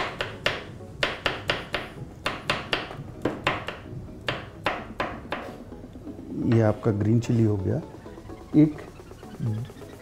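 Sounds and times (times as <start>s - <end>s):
knife chopping on wooden board: 0.0s - 5.6s.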